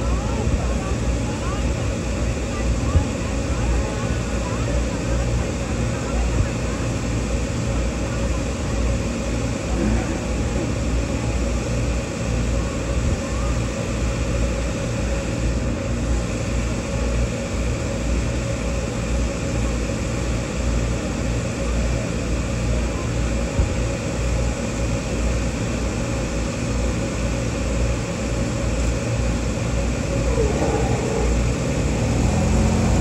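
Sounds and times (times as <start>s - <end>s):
engine rumble: 0.0s - 14.0s, 25.6s - 33.0s.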